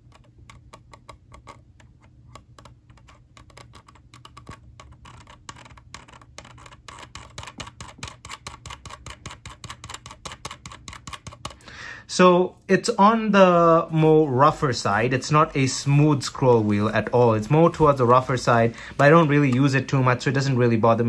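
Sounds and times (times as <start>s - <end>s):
mouse scroll wheel ticking: 0.0s - 11.6s.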